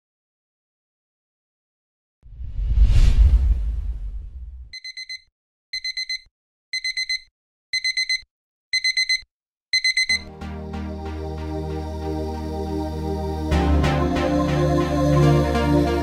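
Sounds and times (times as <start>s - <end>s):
low rumbling boom: 2.4s - 4.7s
alarm clock beeping: 4.8s - 10.3s
music with deep bass: 10.3s - 16.0s.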